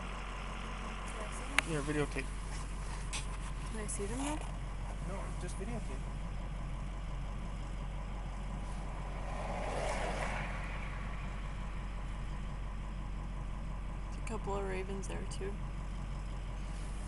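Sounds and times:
car engine idling: 0:00.0 - 0:17.0
rushing noise: 0:08.6 - 0:12.2.

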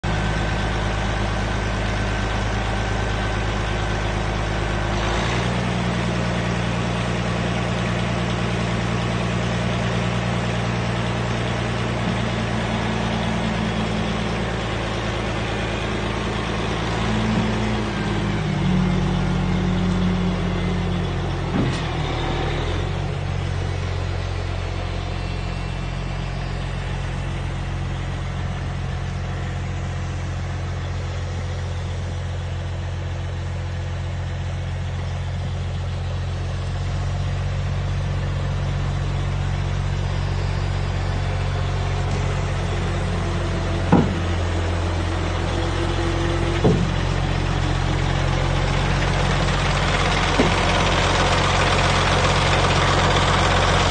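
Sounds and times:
diesel truck engine running: 0:00.0 - 0:53.9
sharp knock: 0:43.9 - 0:44.4.

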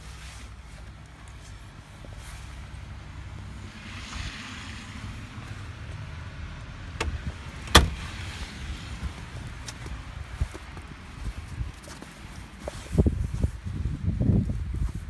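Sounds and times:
door latch click: 0:07.0 - 0:08.0.

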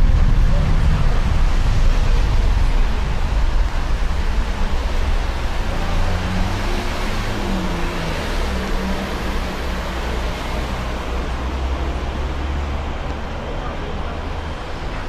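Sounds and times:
jet engines rumbling: 0:00.0 - 0:08.6
cars hissing on wet road: 0:00.0 - 0:15.0.

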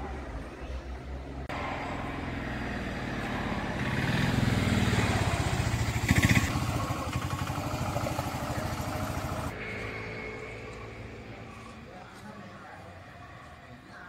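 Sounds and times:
vehicle engine running: 0:01.5 - 0:09.6.

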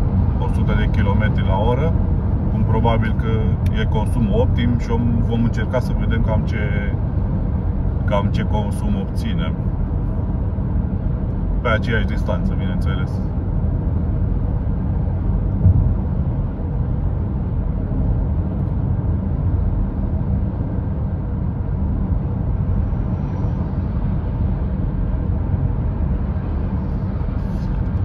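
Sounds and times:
tyre and wind noise in car cabin: 0:00.0 - 0:28.0
thump: 0:15.6 - 0:16.0.

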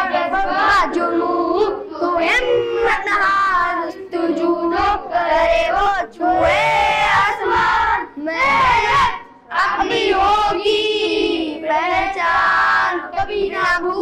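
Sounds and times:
boys singing into a microphone: 0:00.0 - 0:14.0.

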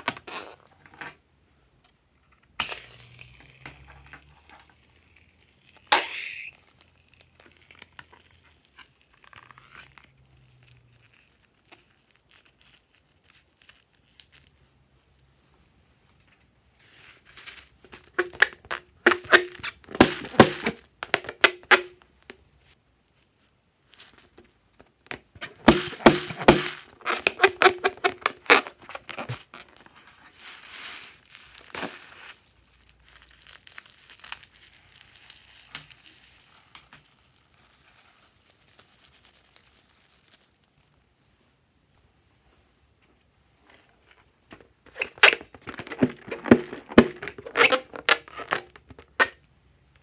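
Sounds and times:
rubbery balloon squeaks: 0:00.0 - 0:00.7, 0:05.2 - 0:07.3, 0:18.1 - 0:21.9, 0:25.5 - 0:29.9, 0:44.9 - 0:49.4
soft hiss and crackling: 0:00.0 - 0:18.2, 0:21.9 - 0:25.7, 0:28.4 - 0:44.9.

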